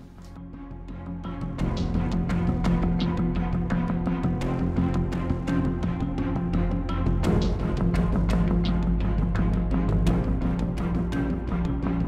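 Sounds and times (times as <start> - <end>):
background music with drum beat: 7.1 - 11.6.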